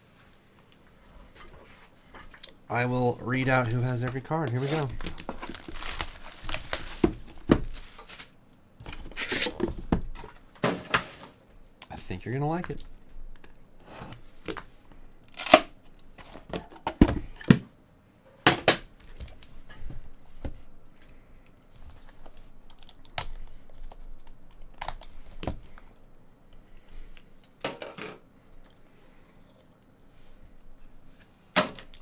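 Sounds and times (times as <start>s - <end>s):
tape and wrap tearing: 4.4s - 8.4s, 15.3s - 15.8s.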